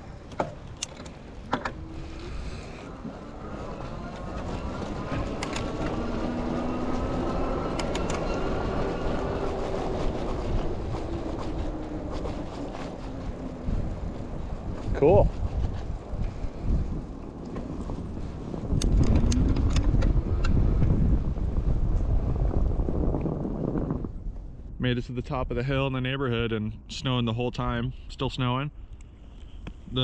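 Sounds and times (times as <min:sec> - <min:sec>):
bike clicks and rattles: 0:00.2 - 0:01.8, 0:03.8 - 0:06.1, 0:07.7 - 0:13.0, 0:17.4 - 0:21.0
fat tyres rolling on snow: 0:01.2 - 0:24.9
electric hub motor whining: 0:01.5 - 0:14.4.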